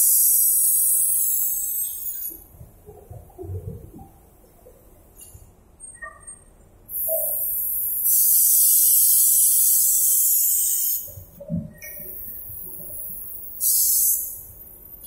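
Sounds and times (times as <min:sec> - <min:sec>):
spray gun air hiss: 0:00.0 - 0:02.4, 0:06.9 - 0:11.3, 0:11.9 - 0:14.5.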